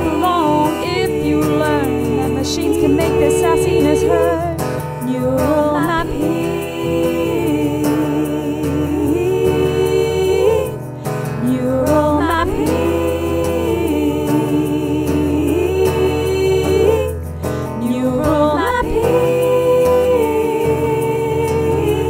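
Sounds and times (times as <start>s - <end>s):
strummed acoustic guitar: 0.0s - 22.0s
women singing in harmony: 0.0s - 22.0s.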